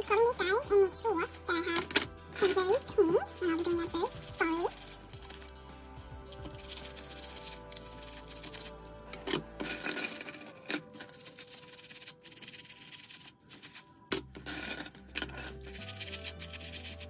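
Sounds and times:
brush scrubbing metal: 6.4 - 8.8, 15.5 - 17.0.

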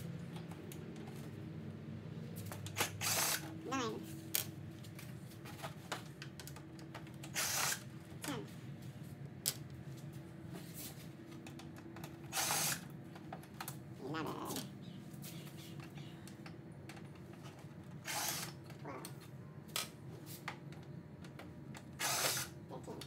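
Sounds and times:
cordless drill running: 2.8 - 3.5, 7.3 - 7.9, 12.3 - 12.9, 18.0 - 18.6, 22.0 - 22.6
clicks and taps of plastic parts: 11.3 - 12.3.

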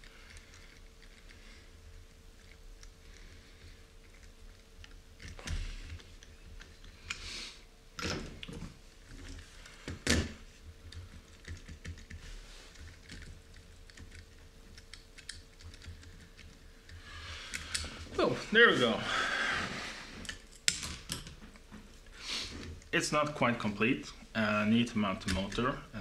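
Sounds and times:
small parts clicking and tapping: 0.0 - 7.2, 8.0 - 17.9, 20.2 - 22.1, 25.1 - 25.8.

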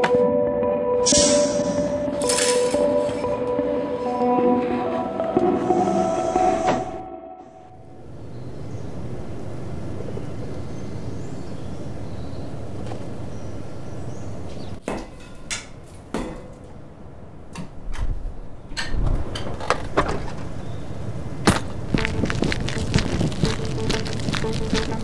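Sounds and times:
steady low rumble: 20.4 - 25.0.

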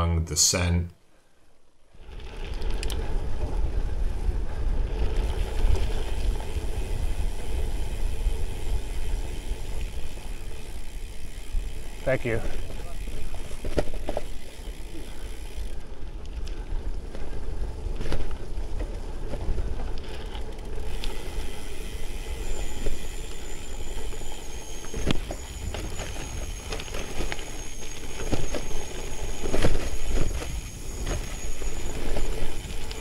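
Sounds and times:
bike tyres rumbling on dirt: 1.8 - 33.0
bike rattling over bumps: 1.9 - 33.0.

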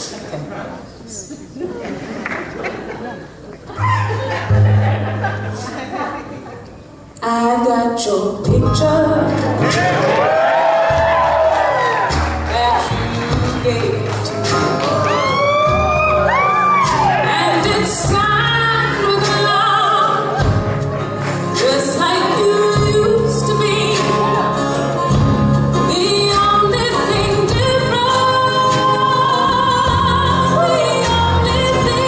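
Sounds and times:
string band playing country music: 3.8 - 6.3, 8.5 - 32.0
woman singing with vibrato: 7.2 - 9.6, 17.2 - 20.4, 21.5 - 25.1, 25.7 - 32.0.

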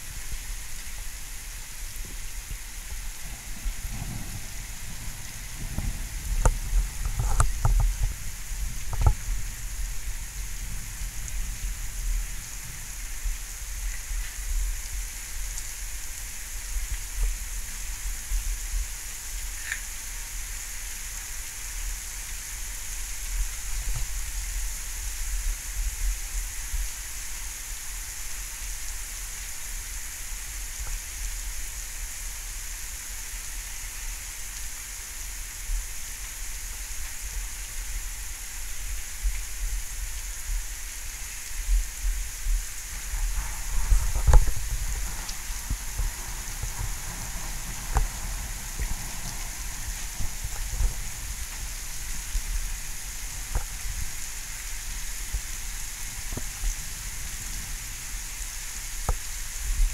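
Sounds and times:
steady rain hiss: 0.0 - 59.9
low thunder rumble: 1.9 - 14.9, 42.0 - 53.0.

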